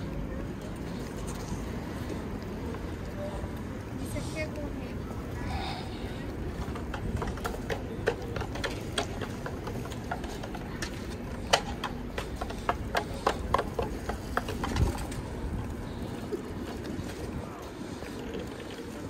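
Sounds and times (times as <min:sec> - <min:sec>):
sharp clicks and knocks: 0:06.6 - 0:15.2.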